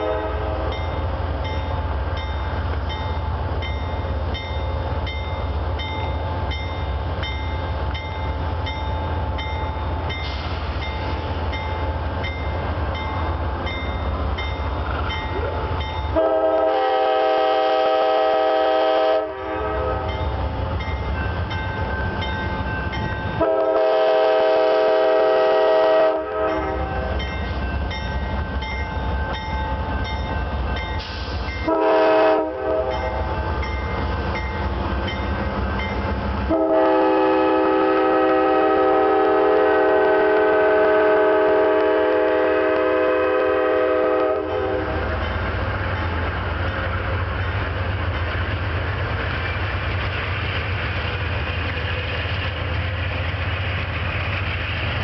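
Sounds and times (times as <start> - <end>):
locomotive horn blasts: 0.0 - 0.9, 15.4 - 20.2, 23.4 - 27.2, 31.6 - 33.2, 36.5 - 45.1
diesel locomotives running: 0.0 - 55.0.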